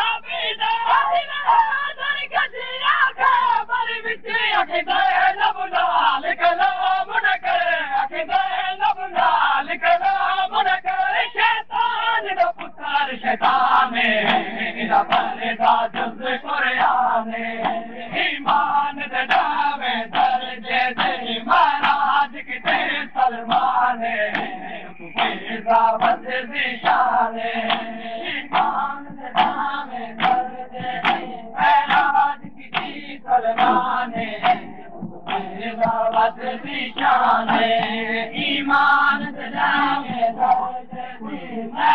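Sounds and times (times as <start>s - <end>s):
men chanting together: 0.0s - 41.9s
hands slapping on chests: 18.4s - 22.8s, 24.3s - 26.2s, 27.6s - 30.4s, 31.0s - 33.0s, 33.6s - 36.3s.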